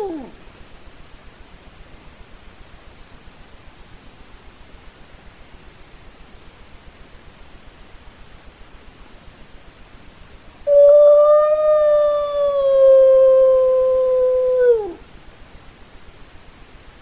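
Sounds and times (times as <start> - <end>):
dog howling: 0.0 - 0.4, 10.7 - 15.0.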